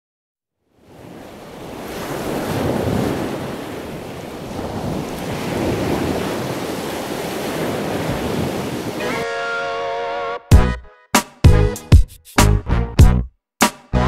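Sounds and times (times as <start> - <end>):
ocean waves breaking: 0.7 - 10.0.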